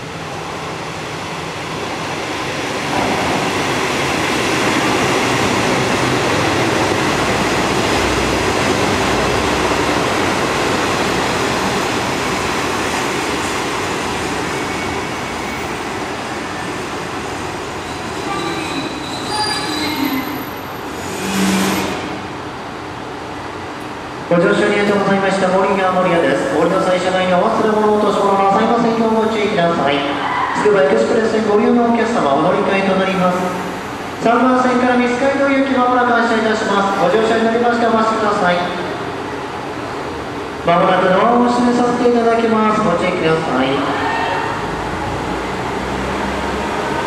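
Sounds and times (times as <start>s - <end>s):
diesel railcar engine and wheels: 0.0s - 47.0s
squealing brakes: 14.5s - 15.9s, 17.8s - 22.2s.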